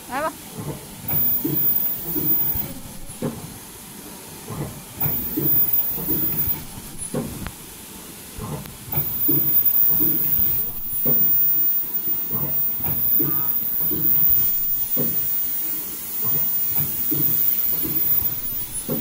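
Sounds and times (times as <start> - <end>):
mechanical clacks and knocks: 0.5 - 3.6, 4.4 - 7.6, 8.4 - 19.0
high-pitched welder whine: 1.1 - 3.2, 5.0 - 7.2, 9.0 - 19.0.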